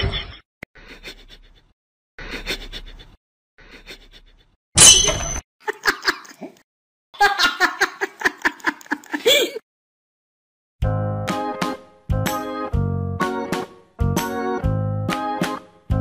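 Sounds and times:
person laughing in short bursts: 8.9s - 9.6s.

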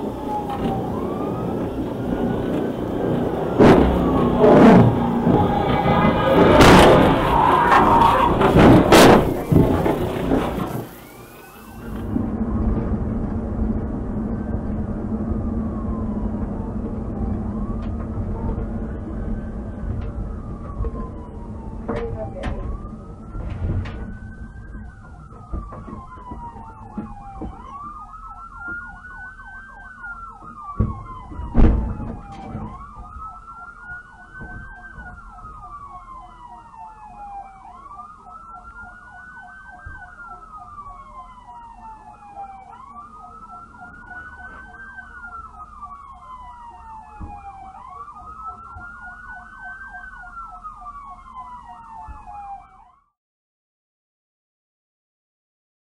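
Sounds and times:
fast pulsing siren tone: 0.0s - 53.1s
police siren wailing: 0.0s - 53.2s
loud heavy thump: 3.6s - 5.5s, 6.4s - 7.2s, 8.3s - 10.9s, 30.8s - 32.8s.

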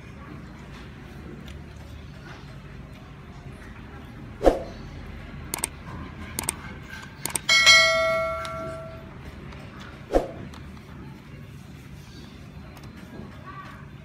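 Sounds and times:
quick clicks: 5.5s - 5.8s, 6.4s - 7.5s
bell ding: 7.4s - 9.2s.

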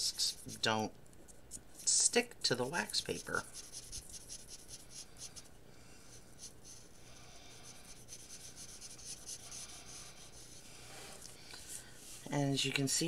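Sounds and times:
marker scratching on wax paper: 1.5s - 5.5s, 6.1s - 10.7s.

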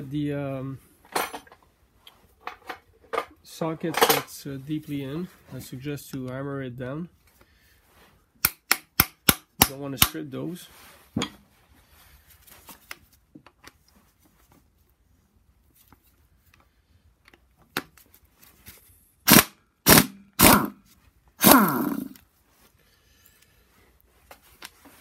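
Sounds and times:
impact wrench bursts: 19.3s - 20.8s, 21.4s - 22.2s.

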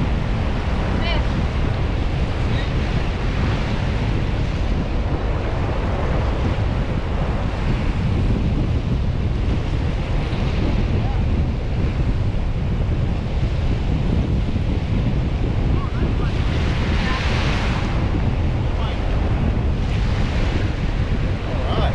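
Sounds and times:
surf breaking on beach: 0.0s - 21.9s
wind buffeting microphone: 0.0s - 21.9s.

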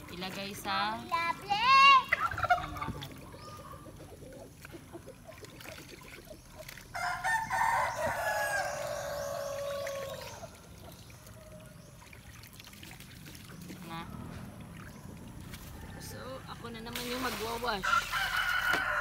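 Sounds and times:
rooster crowing: 7.0s - 10.5s, 17.8s - 19.0s.

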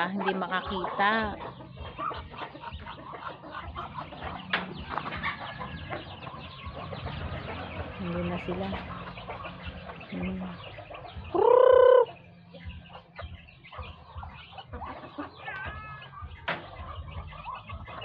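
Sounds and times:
chickens clucking: 0.0s - 18.0s
chicken drawn-out call: 11.3s - 12.2s, 14.6s - 18.0s.

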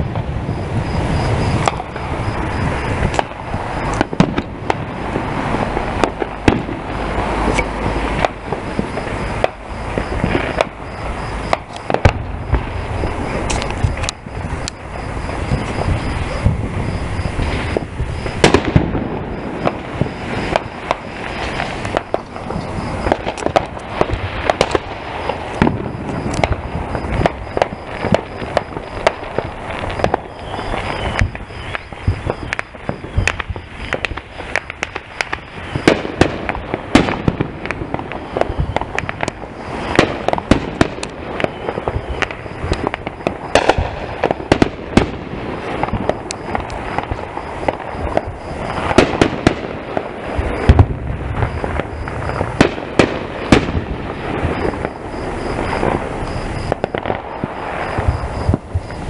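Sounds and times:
fireworks banging and crackling: 0.0s - 59.0s.

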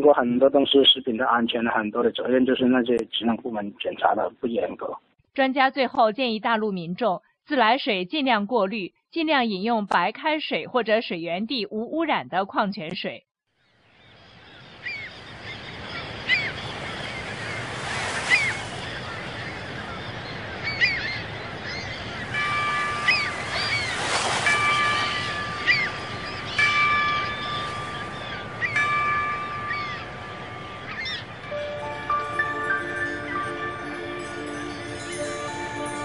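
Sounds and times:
birds chirping: 13.9s - 36.0s
ocean waves washing: 14.8s - 36.0s.

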